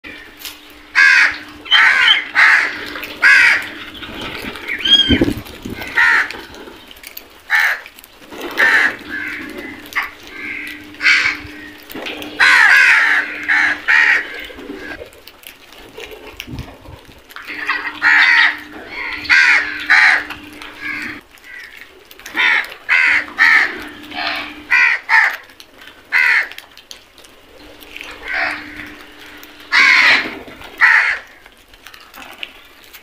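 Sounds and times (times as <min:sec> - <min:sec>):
crows cawing: 0:00.1 - 0:06.5, 0:07.5 - 0:07.9, 0:08.5 - 0:15.0, 0:17.5 - 0:25.4, 0:26.1 - 0:26.6, 0:27.8 - 0:31.4.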